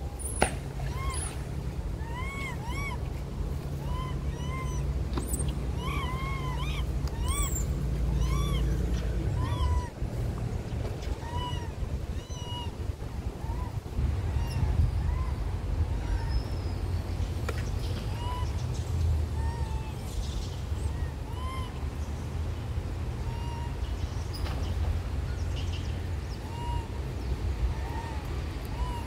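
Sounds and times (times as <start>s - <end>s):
steady low rumble: 0.0s - 29.0s
monkeys crying: 0.8s - 10.2s, 11.0s - 16.6s, 18.0s - 18.6s, 19.3s - 20.2s, 20.8s - 22.0s, 23.2s - 23.9s, 26.4s - 29.0s.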